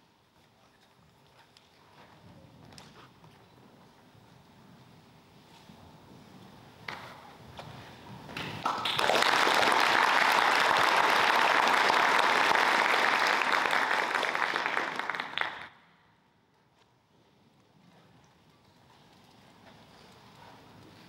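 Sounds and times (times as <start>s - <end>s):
audience applauding: 8.6s - 15.8s.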